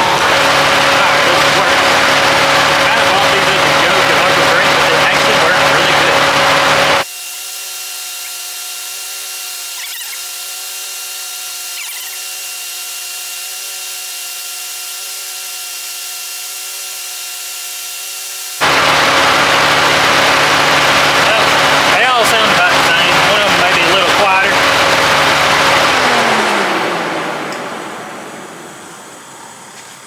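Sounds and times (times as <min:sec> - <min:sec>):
car engine running: 0:00.0 - 0:07.1, 0:18.5 - 0:30.0
muffled engine hum: 0:00.0 - 0:07.1.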